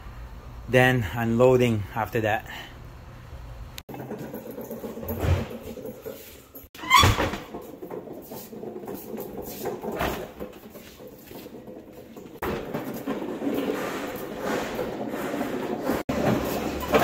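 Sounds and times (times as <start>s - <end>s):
hand truck rolling on concrete: 3.8s - 17.0s
knocks and rattles: 3.9s - 17.0s.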